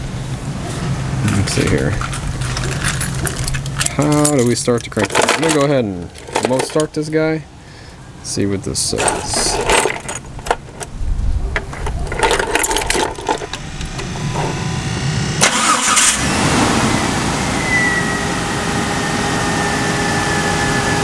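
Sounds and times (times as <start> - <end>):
car engine running with whine: 0.0 - 4.4, 9.2 - 21.0
car engine starter cranking: 11.6 - 14.6, 15.4 - 16.3.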